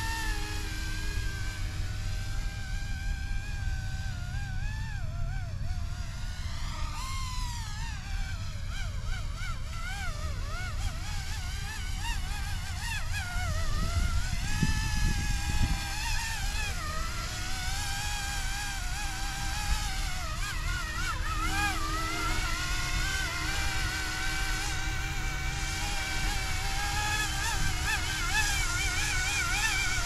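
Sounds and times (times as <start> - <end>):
rc helicopter motor whine: 0.0 - 30.0
wind rumble on microphone: 11.9 - 20.2.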